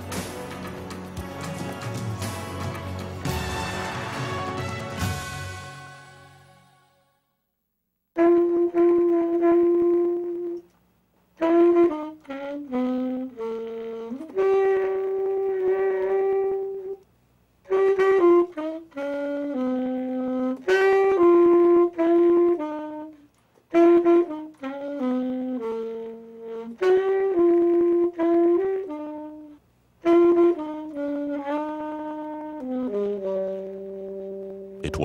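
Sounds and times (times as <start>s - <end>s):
solo wind instrument melody: 8.2s - 10.7s, 11.4s - 17.0s, 17.7s - 35.0s.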